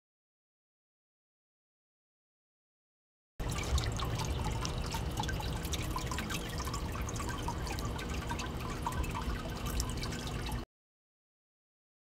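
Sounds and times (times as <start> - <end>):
water trickling and dripping: 3.4 - 10.6.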